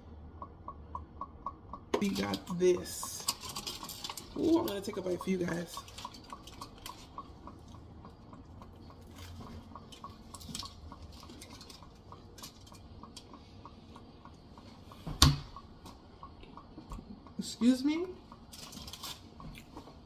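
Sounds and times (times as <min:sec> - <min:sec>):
faint steady ticking: 0:00.0 - 0:20.0
aluminium foil crinkling: 0:02.0 - 0:07.8, 0:09.0 - 0:13.4, 0:18.5 - 0:19.3
biting and chewing: 0:05.2 - 0:13.4, 0:18.4 - 0:20.0.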